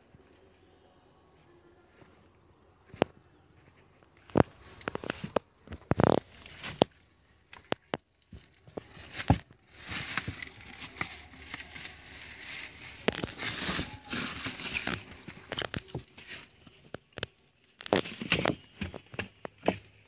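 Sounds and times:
rustling of dry plants: 0.0 - 20.0
footsteps on stone: 2.9 - 17.2.

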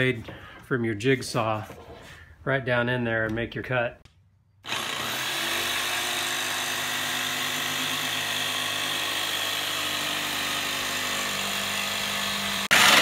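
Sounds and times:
electric jigsaw cutting plywood: 4.6 - 13.0.

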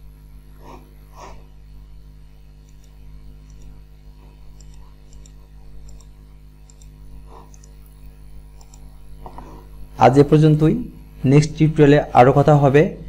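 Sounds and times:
low electrical hum: 0.0 - 13.0
computer mouse clicking: 2.6 - 3.8, 4.5 - 9.0.

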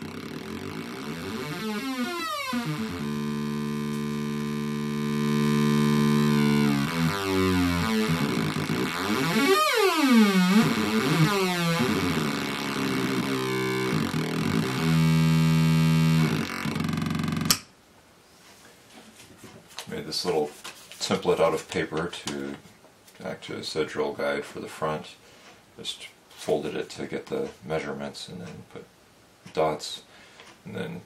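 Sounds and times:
synthesizer square-wave tones sweeping: 0.0 - 17.5.

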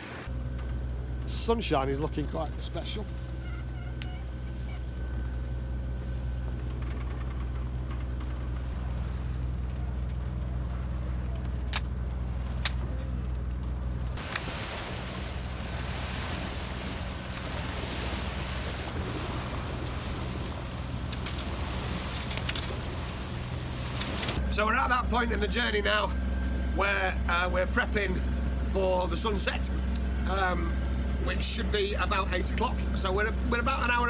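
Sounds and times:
rush of wind and water: 0.0 - 0.3, 14.2 - 24.4
boat engine droning: 0.0 - 34.0.

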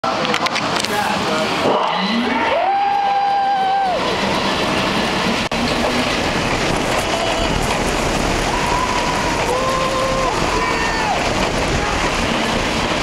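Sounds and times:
roller coaster wheels rumbling on track: 0.0 - 13.0
riders screaming: 2.0 - 4.5, 6.8 - 12.7
wind rushing past microphone: 2.9 - 13.0.

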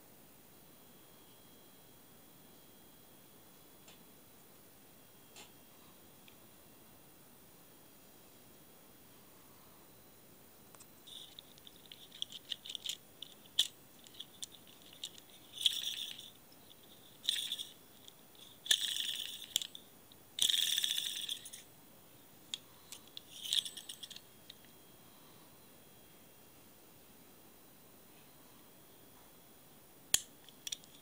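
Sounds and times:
fishing reel metallic clicks: 11.1 - 17.8, 18.4 - 19.8, 20.4 - 21.6, 23.0 - 24.2
reel spool spinning and clicking: 11.1 - 17.8, 18.4 - 19.8, 20.4 - 21.6.

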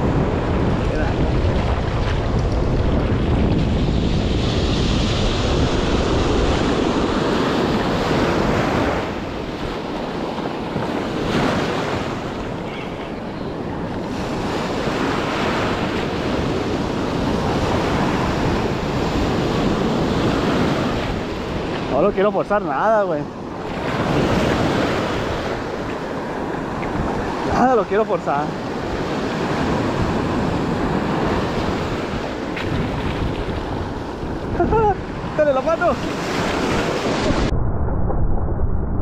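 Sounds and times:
ocean surf washing: 0.0 - 38.2
wind buffeting microphone: 0.0 - 39.0.

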